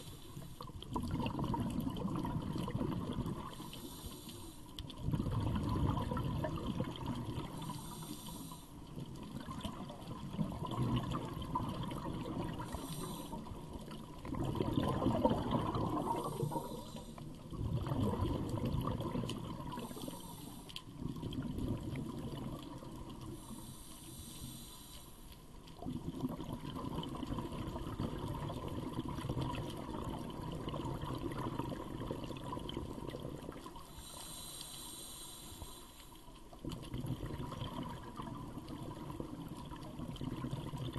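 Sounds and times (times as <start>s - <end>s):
exhaled bubbles gurgling: 0.0s - 24.6s, 25.6s - 40.9s
diver breathing through regulator: 3.4s - 4.8s, 7.4s - 8.8s, 12.5s - 13.8s, 15.9s - 17.4s, 19.7s - 20.8s, 23.3s - 25.3s, 33.8s - 36.2s.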